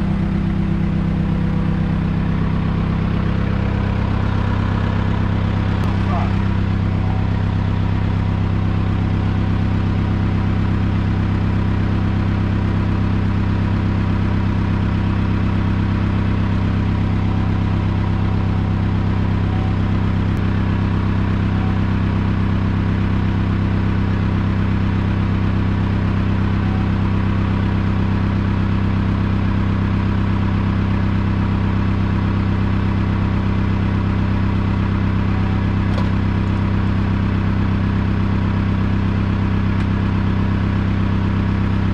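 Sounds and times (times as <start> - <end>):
engine droning steadily: 0.0 - 41.9.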